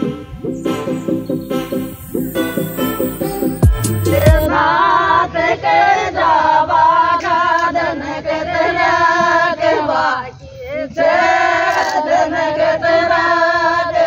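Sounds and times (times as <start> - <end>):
women singing together: 4.2 - 14.0.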